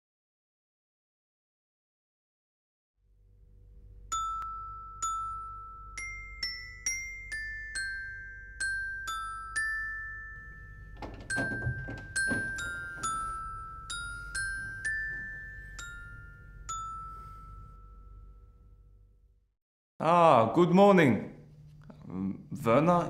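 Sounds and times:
bell-like melody: 3.8s - 19.2s
dull knocks: 11.0s - 13.3s.

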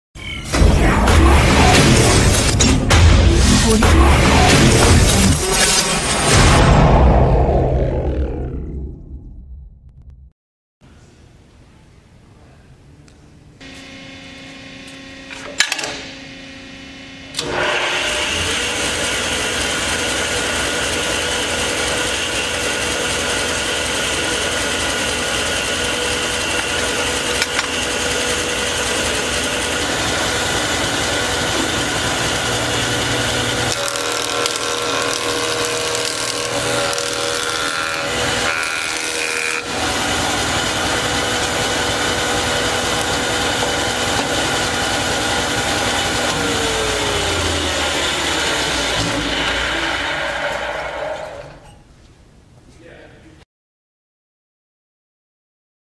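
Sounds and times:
jointer motor running: 13.6s - 51.6s.

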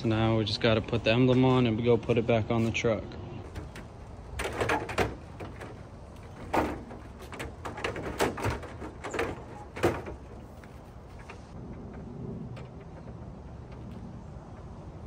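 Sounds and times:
plastic parts knocking and clicking: 3.5s - 10.7s.

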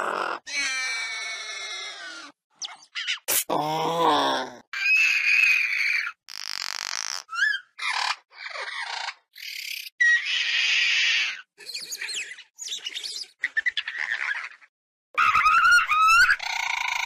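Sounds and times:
high bird-like chirps and squeaks: 2.6s - 3.3s, 4.8s - 14.6s.

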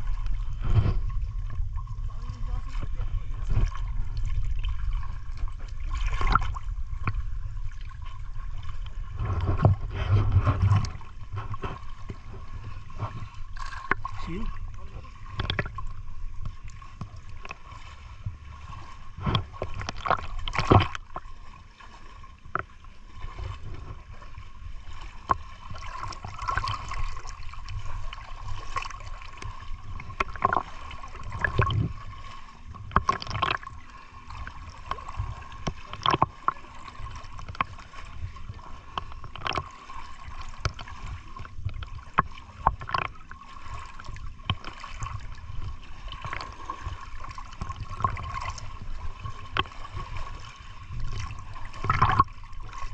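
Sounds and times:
water splashing and sloshing: 0.0s - 52.9s.

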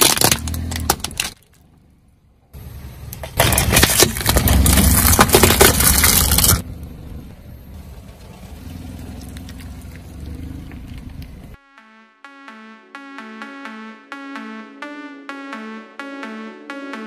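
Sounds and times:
tyre crushing crunchy objects: 0.0s - 1.7s, 3.2s - 6.6s
car low rumble: 0.0s - 11.6s.

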